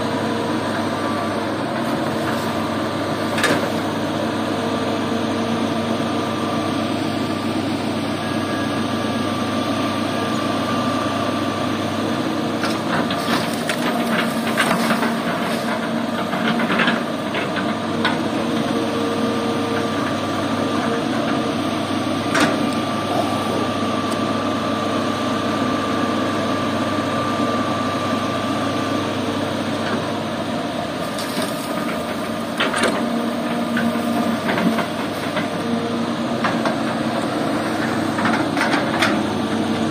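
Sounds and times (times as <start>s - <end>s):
excavator diesel engine running: 0.0s - 39.9s
whining tones: 20.9s - 24.6s.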